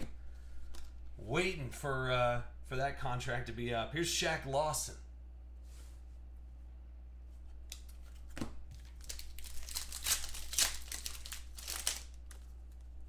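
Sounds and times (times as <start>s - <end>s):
plastic wrapper tearing and crinkling: 8.8s - 12.9s.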